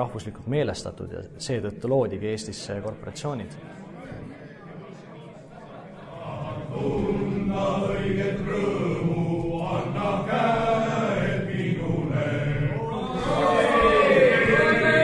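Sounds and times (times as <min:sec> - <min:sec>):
men singing in unison: 0:06.1 - 0:15.0.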